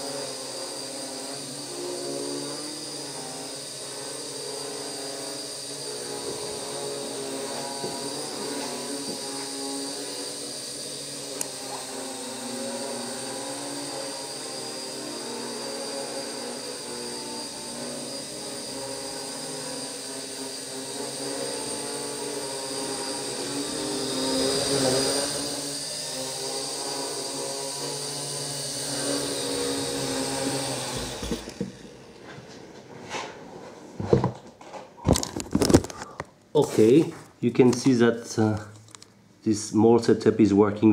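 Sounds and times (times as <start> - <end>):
quadcopter propellers buzzing: 0.0 - 32.2.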